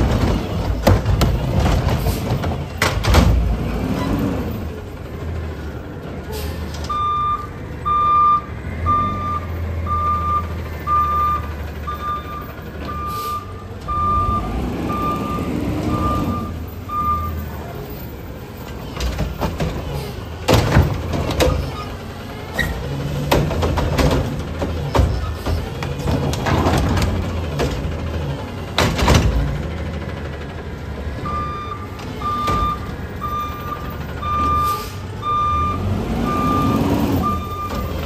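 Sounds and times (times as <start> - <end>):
garbage truck running: 0.0 - 38.0
reverse alarm beeping: 6.9 - 17.4, 31.2 - 37.9.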